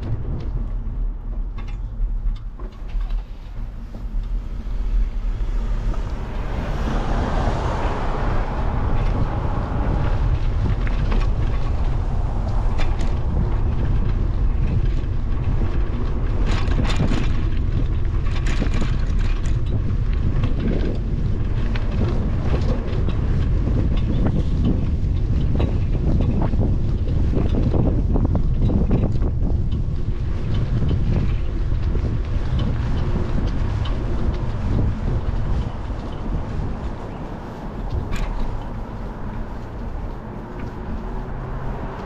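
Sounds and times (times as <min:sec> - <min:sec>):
bike rolling on asphalt: 0:00.0 - 0:42.0
broad rushing noise: 0:00.0 - 0:42.0
wind buffeting microphone: 0:00.0 - 0:42.0
clicks and rattles: 0:10.0 - 0:41.0.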